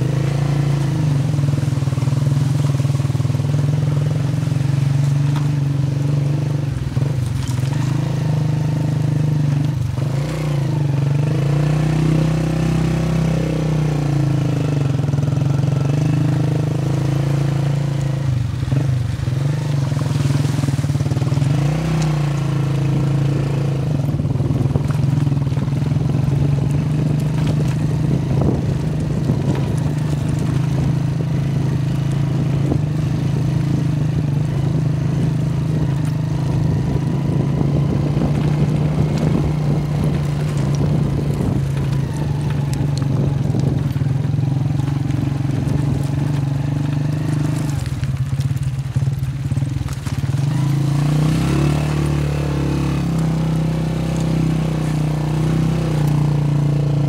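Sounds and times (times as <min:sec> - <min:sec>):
vehicle engine running: 0:00.0 - 0:57.0.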